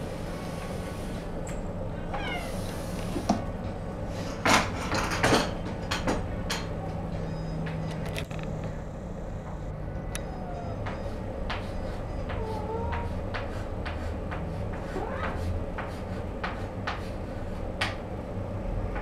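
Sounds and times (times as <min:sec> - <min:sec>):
steady low hum: 0:00.0 - 0:19.0
kitten meowing: 0:02.1 - 0:02.7.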